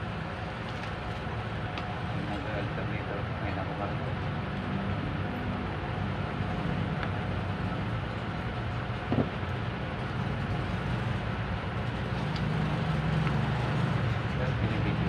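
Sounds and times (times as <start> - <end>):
engine rumbling steadily: 0.0 - 15.0.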